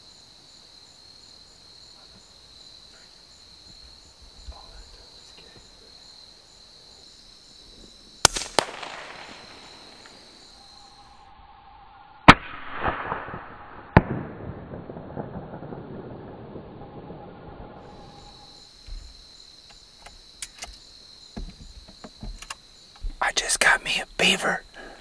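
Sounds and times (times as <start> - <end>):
gunshots with echo: 8.3 - 10.3.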